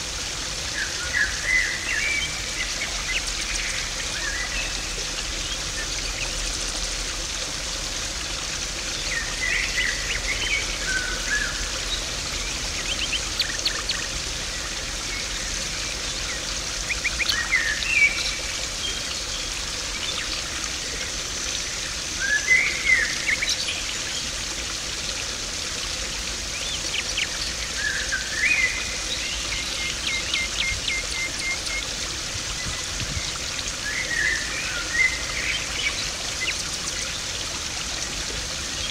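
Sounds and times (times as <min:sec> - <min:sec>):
pond water trickling and splashing: 0:00.0 - 0:38.9.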